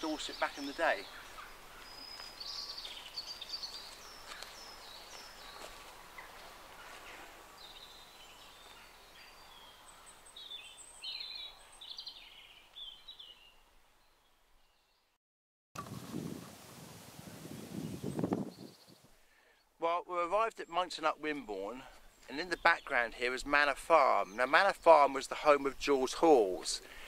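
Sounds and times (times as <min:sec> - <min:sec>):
small birds chirping: 0:00.0 - 0:15.1, 0:17.4 - 0:19.8, 0:20.5 - 0:27.0.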